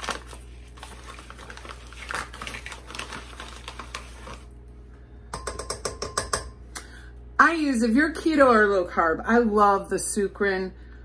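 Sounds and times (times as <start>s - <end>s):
plastic pouch crinkling: 0.0s - 4.5s.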